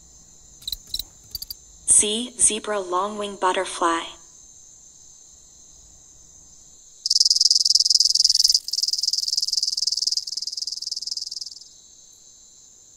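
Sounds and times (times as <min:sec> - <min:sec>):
insect chirring trill: 0:00.0 - 0:02.4, 0:04.2 - 0:12.9
faint high insect hum: 0:00.0 - 0:12.9.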